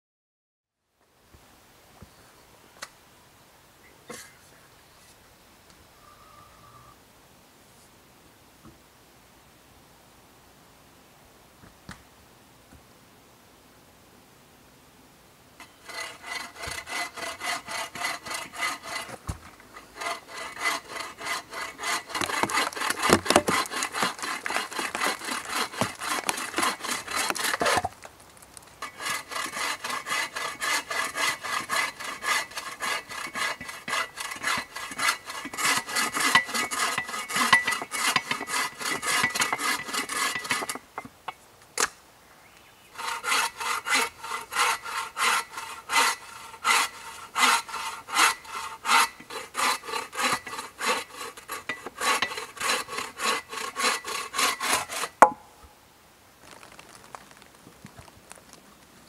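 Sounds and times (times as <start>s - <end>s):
saw cutting through log: 15.6s - 27.9s, 28.8s - 40.8s, 43.0s - 55.3s.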